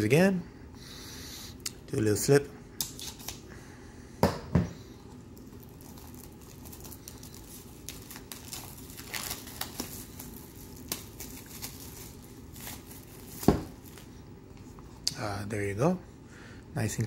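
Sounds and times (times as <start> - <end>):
plastic wrap crinkling: 5.3 - 14.1.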